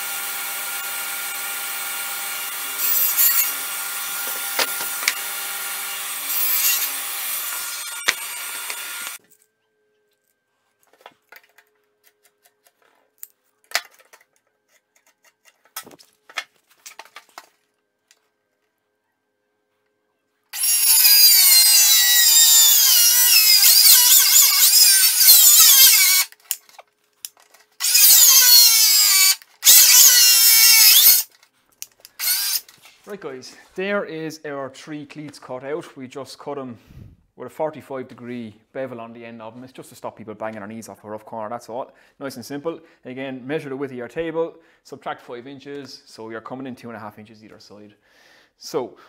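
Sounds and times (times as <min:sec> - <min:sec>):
circular saw cutting wood: 0:00.0 - 0:09.2, 0:20.5 - 0:26.4, 0:27.8 - 0:31.3, 0:32.2 - 0:32.7.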